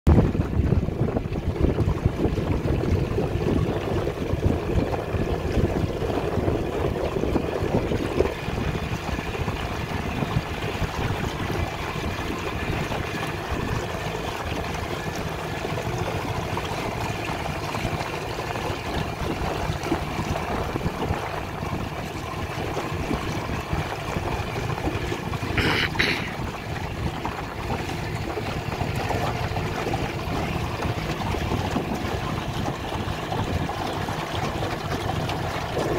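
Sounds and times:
outboard motor running: 0:00.1 - 0:35.9
water washing against hull: 0:00.1 - 0:35.9
wind on microphone: 0:00.1 - 0:35.9.

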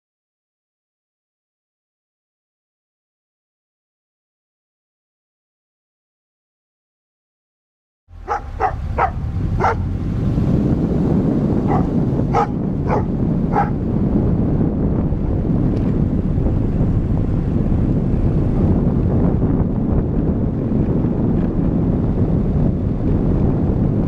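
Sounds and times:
car engine and road rumble: 0:08.1 - 0:24.0
dog barking: 0:08.2 - 0:09.9, 0:11.6 - 0:13.9.

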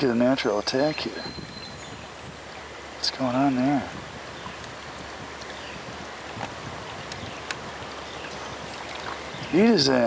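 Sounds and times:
rushing river water: 0:00.0 - 0:10.0.

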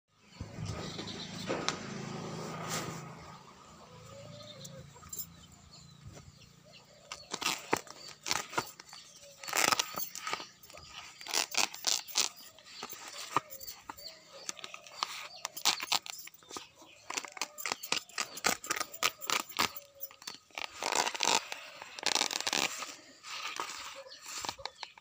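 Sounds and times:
plastic hose scraping and clicking: 0:07.1 - 0:25.0.

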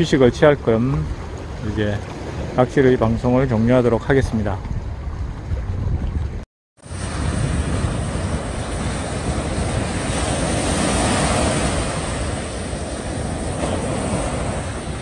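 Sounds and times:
wind rumbling on microphone: 0:00.0 - 0:15.0
waves breaking on sandy beach: 0:06.8 - 0:15.0.

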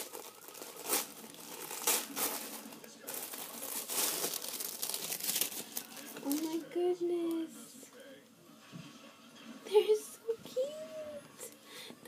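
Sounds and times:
tissue paper crinkling: 0:00.0 - 0:06.8.

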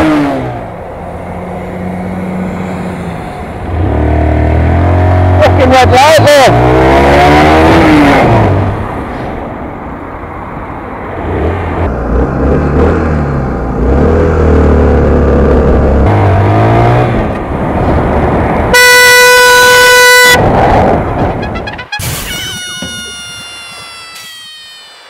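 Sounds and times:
vehicle horn: 0:18.7 - 0:20.4, 0:21.1 - 0:24.0.

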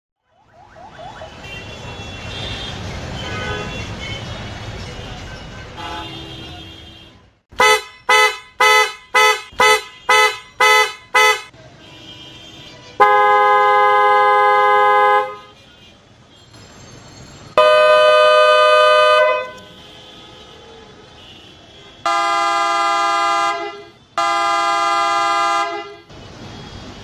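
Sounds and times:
car horn short toots: 0:05.8 - 0:11.5
dual-tone car horn blast: 0:05.8 - 0:15.7, 0:17.6 - 0:20.2, 0:21.2 - 0:26.1.

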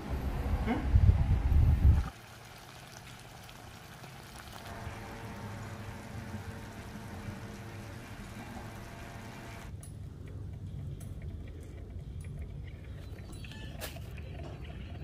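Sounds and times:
wind rumble on microphone: 0:00.1 - 0:02.1
liquid bubbling in a frying pan: 0:02.1 - 0:09.4.

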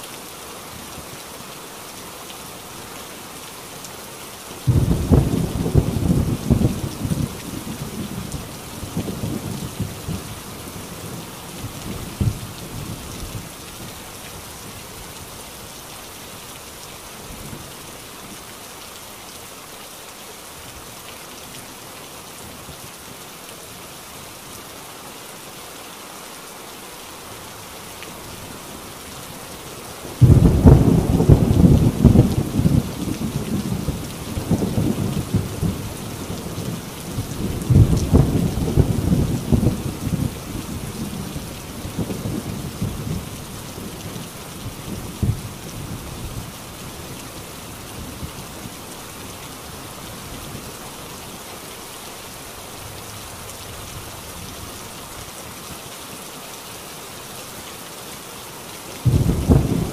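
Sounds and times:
heavy rain on a tin roof: 0:00.0 - 0:59.9
thunder rumbling: 0:04.7 - 0:10.3, 0:30.1 - 0:44.2, 0:59.0 - 0:59.9.

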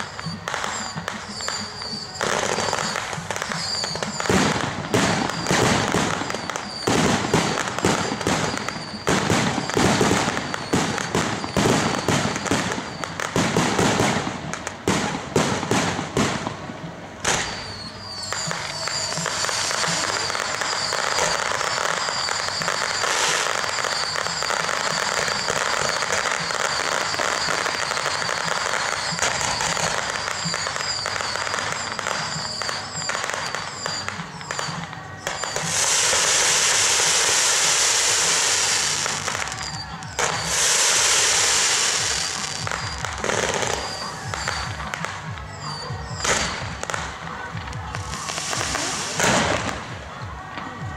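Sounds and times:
fireworks bangs and crackling: 0:00.0 - 0:50.9
spark fountains hissing: 0:35.2 - 0:44.6, 0:48.1 - 0:49.6.

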